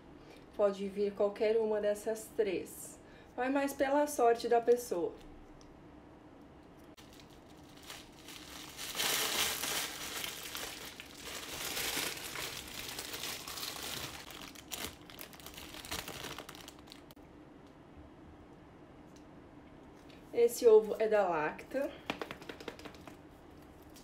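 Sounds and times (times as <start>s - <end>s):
plastic wrapper crinkling: 7.0s - 17.2s.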